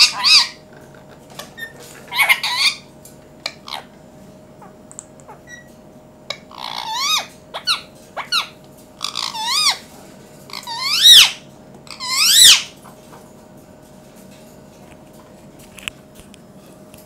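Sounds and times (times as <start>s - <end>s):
parakeet squawking: 0.0s - 0.6s, 1.6s - 3.9s, 4.6s - 5.7s, 6.3s - 9.9s, 10.5s - 12.8s.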